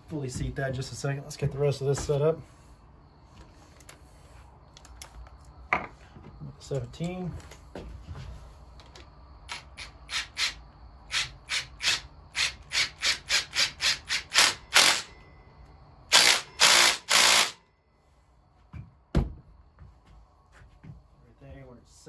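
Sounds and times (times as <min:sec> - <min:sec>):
impact driver running: 0:09.5 - 0:15.1, 0:16.1 - 0:17.6.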